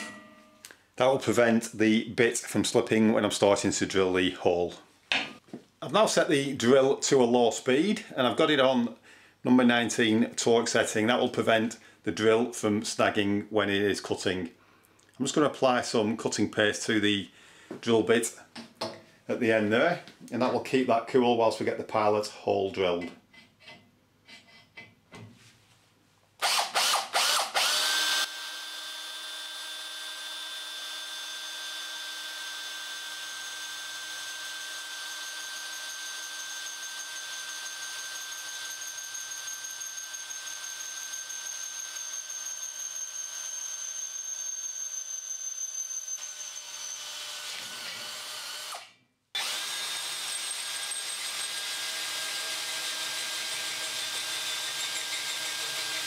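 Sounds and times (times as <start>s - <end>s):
drill cutting into steel: 26.4s - 56.0s.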